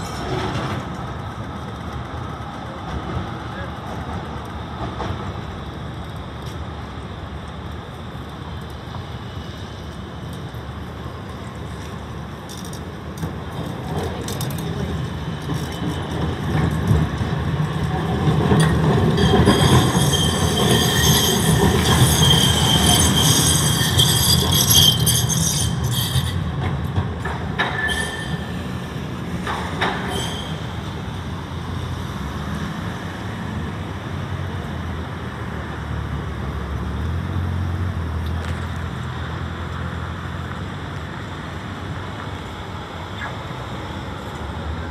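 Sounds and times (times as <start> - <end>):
tram wheels squealing on rails: 0.0 - 1.4, 8.8 - 33.2, 42.2 - 44.9
street traffic: 0.0 - 44.9
tram running rumble: 0.0 - 44.9.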